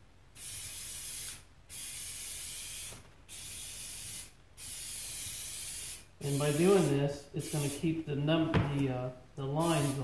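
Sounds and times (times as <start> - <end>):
aerosol spray can spraying: 0.4 - 7.8, 9.6 - 10.0.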